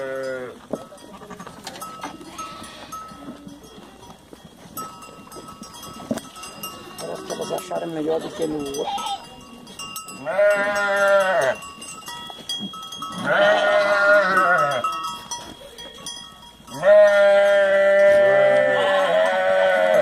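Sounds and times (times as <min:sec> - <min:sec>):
goats bleating: 0:00.0 - 0:04.0, 0:06.2 - 0:09.4, 0:10.2 - 0:11.6, 0:13.0 - 0:14.9, 0:16.7 - 0:20.0.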